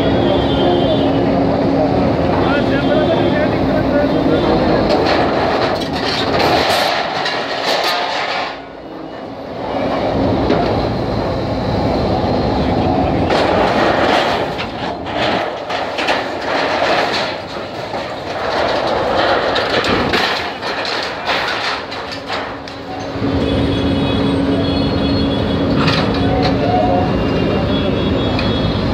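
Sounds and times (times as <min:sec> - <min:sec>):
diesel engine under load: 0:00.0 - 0:28.9
metal sheets clattering and crunching: 0:02.4 - 0:08.7, 0:13.2 - 0:23.7, 0:25.6 - 0:26.6.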